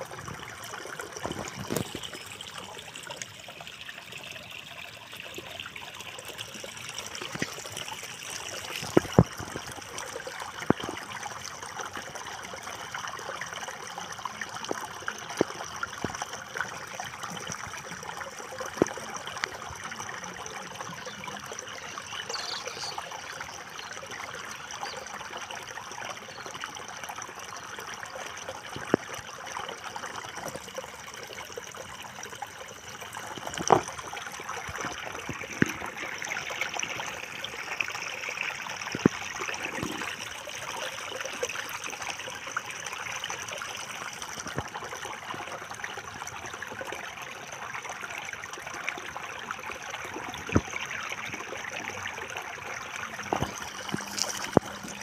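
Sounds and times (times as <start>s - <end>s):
shallow water trickling: 0.0s - 55.0s.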